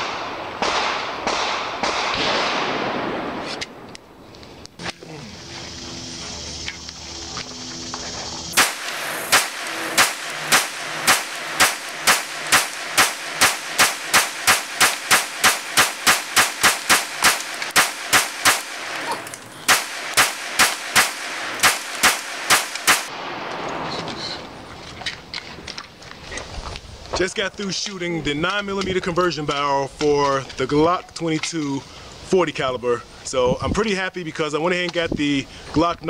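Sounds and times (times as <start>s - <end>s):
pistol shots: 0.0s - 3.9s, 8.5s - 24.3s.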